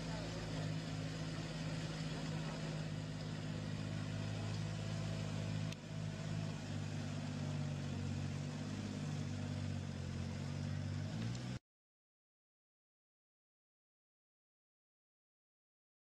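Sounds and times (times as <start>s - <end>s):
tractor diesel engine running: 0.0s - 11.6s.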